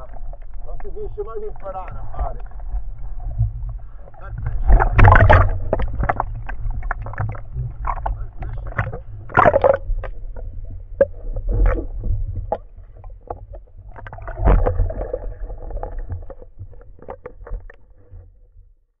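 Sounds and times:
underwater clicks and crackles: 0:00.0 - 0:18.7
underwater low rumble: 0:00.0 - 0:18.9
bubbling surges: 0:01.8 - 0:16.8.

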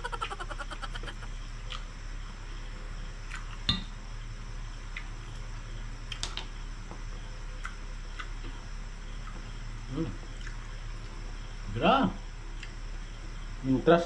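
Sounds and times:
low hum: 0:00.0 - 0:13.7
crackles of crisp skin: 0:04.9 - 0:08.6.

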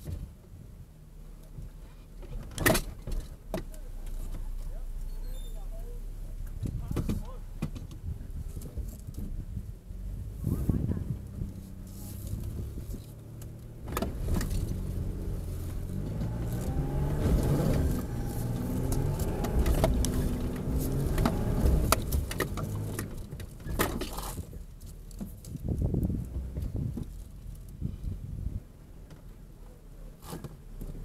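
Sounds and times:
truck engine pulling under load: 0:11.2 - 0:24.5
truck body knocks and rattles: 0:15.7 - 0:24.6.

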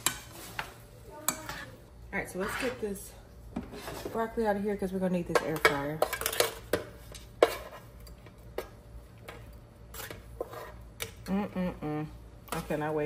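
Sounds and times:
metal spoon scraping basket: 0:01.3 - 0:03.0.

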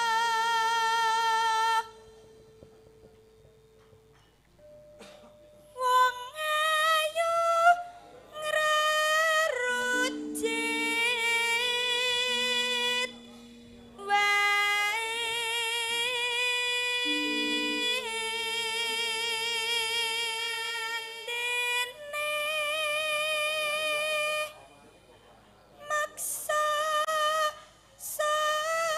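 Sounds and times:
woman singing with vibrato: 0:00.0 - 0:02.0, 0:08.4 - 0:13.2, 0:14.0 - 0:24.5
quiet instrumental notes: 0:00.0 - 0:27.4.

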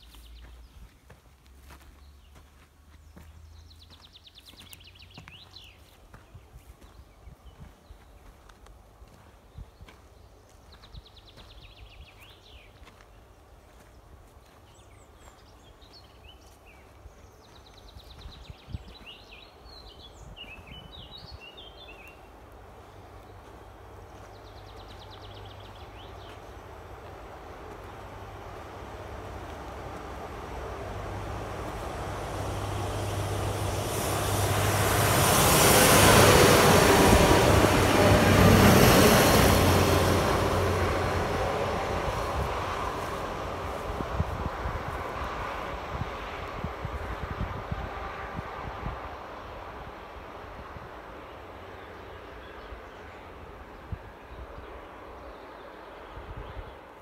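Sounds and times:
songbirds chirping and trilling: 0:00.0 - 0:34.2
diesel train passing: 0:00.0 - 0:57.0.

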